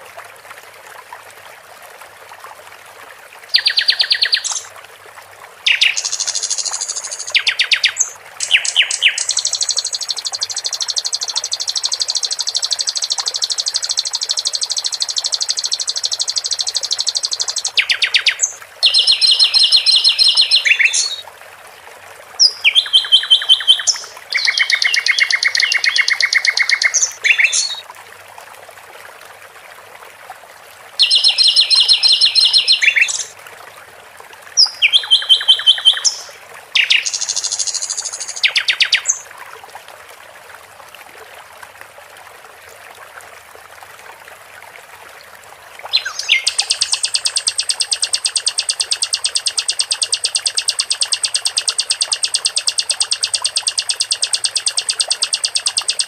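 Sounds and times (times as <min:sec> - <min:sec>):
water trickling: 0:00.0 - 0:56.0
songbird singing: 0:03.5 - 0:04.7, 0:05.7 - 0:21.2, 0:22.4 - 0:27.8, 0:31.0 - 0:33.3, 0:34.6 - 0:39.2, 0:45.9 - 0:56.0.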